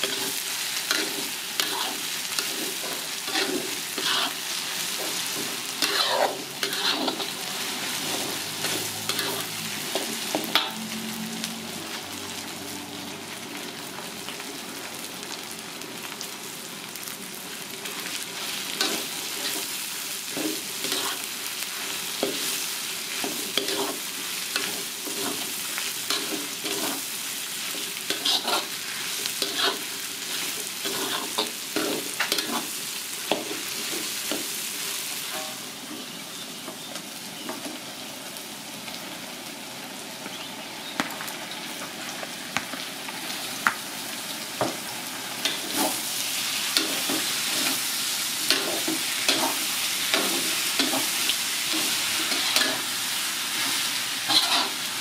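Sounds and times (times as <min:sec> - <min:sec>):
metal spatula scraping wok: 0:00.0 - 0:10.9, 0:18.8 - 0:21.3, 0:21.9 - 0:34.5, 0:35.2 - 0:36.0, 0:45.4 - 0:52.9, 0:53.5 - 0:54.9
vegetables sizzling in hot oil: 0:00.0 - 0:55.0.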